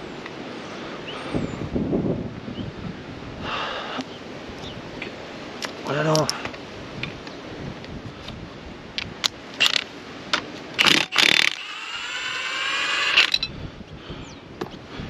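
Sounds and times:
impact wrench whine: 10.8s - 13.5s.

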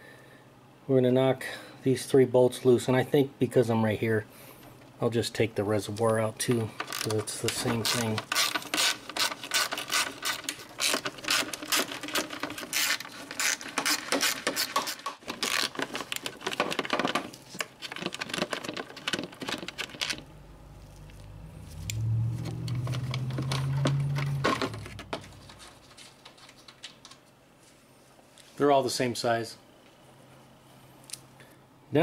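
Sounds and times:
low steady hum: 0.0s - 32.0s.

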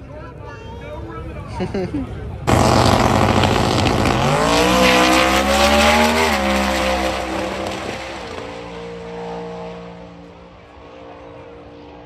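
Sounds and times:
drag car engine at full throttle: 2.5s - 12.0s.

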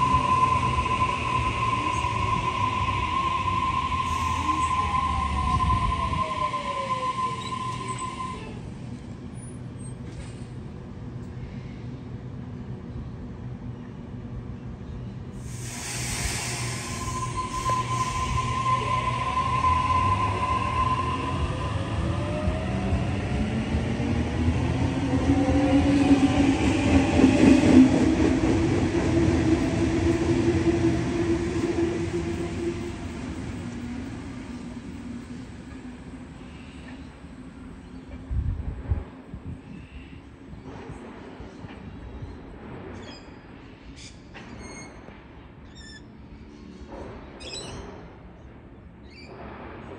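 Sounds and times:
electric train whine: 0.0s - 9.0s, 15.4s - 38.4s
train rolling hum and rumble: 0.0s - 49.9s.

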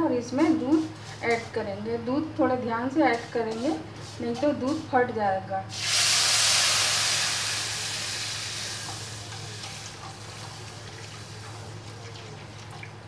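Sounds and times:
milk sizzling in hot pan: 5.7s - 13.0s.

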